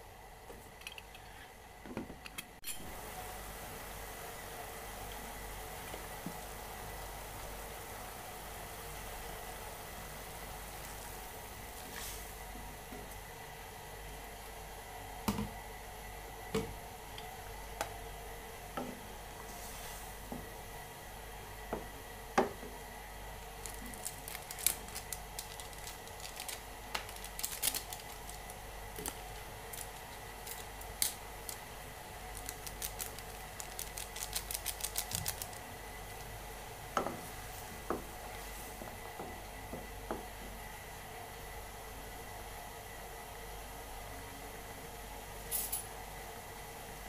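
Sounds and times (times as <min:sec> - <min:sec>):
water simmering hiss: 0:02.8 - 0:14.9.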